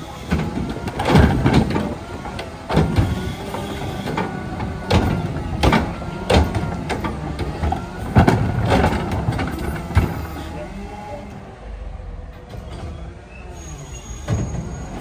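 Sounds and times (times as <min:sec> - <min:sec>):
garbage truck idling: 0:00.0 - 0:15.0
trash cart banging against arm: 0:00.3 - 0:10.4.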